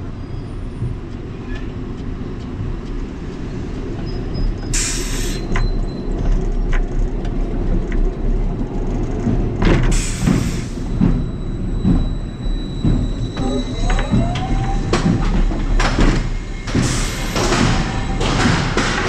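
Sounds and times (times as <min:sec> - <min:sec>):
roller coaster wheels rumbling: 0:00.0 - 0:19.0
pneumatic brake air hisses: 0:04.7 - 0:05.6, 0:09.9 - 0:11.0, 0:16.1 - 0:18.9.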